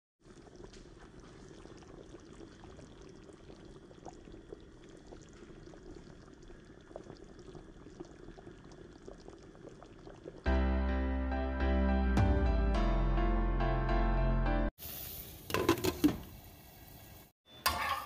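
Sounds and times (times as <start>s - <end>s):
curry bubbling with small pops: 0.2s - 10.5s.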